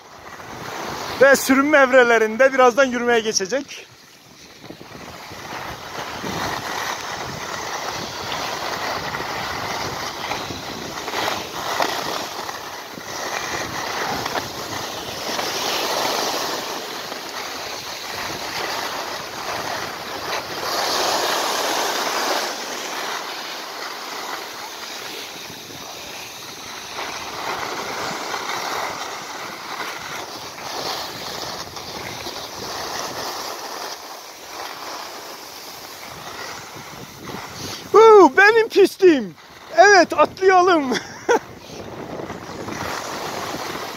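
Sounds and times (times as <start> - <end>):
skis hissing over snow: 0.0 - 43.9
wind on microphone: 3.7 - 15.8, 25.1 - 33.4, 35.9 - 43.9.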